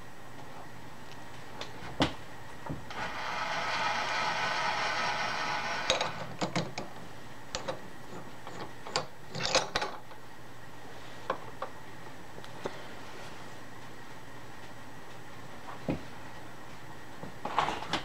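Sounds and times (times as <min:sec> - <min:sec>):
mechanical whir: 0:02.9 - 0:06.6.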